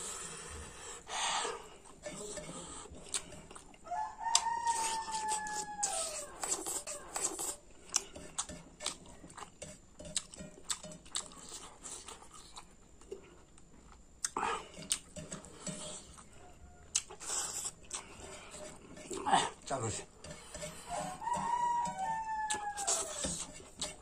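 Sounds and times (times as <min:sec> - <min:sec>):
close-up eating sounds: 0:00.0 - 0:24.0
rooster crowing: 0:03.8 - 0:06.4, 0:16.3 - 0:17.0, 0:20.7 - 0:23.5.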